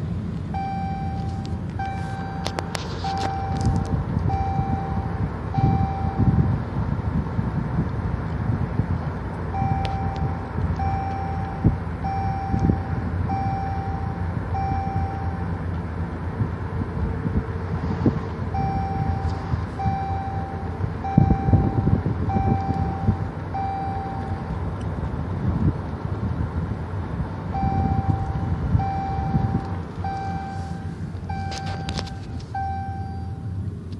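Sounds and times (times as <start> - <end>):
car road and engine rumble: 0.0 - 33.9
electronic warning beep: 0.5 - 6.5, 9.5 - 15.5, 18.5 - 24.5, 27.5 - 33.5.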